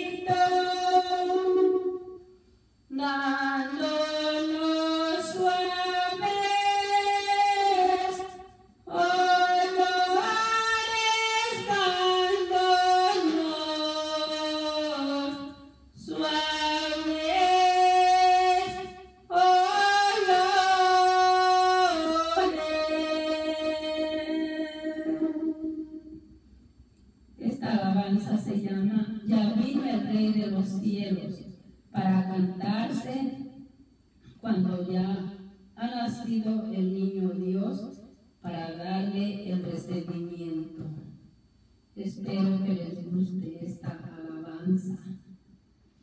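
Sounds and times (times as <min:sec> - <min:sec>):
woman singing unaccompanied: 0:00.0 - 0:02.2, 0:02.9 - 0:26.2, 0:42.0 - 0:44.9.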